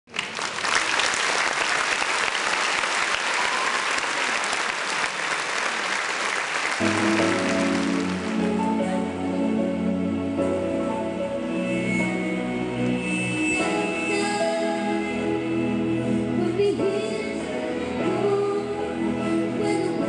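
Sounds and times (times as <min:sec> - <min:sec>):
audience applauding: 0:00.1 - 0:08.9
music with held notes: 0:06.8 - 0:20.0.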